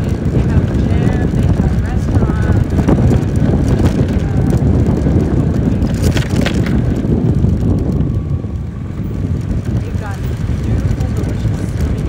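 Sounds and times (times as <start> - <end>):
scooter engine and road rumble: 0.0 - 12.0
wind rushing over microphone: 0.0 - 12.0
woman talking: 0.2 - 2.8, 3.9 - 5.7, 9.8 - 12.0.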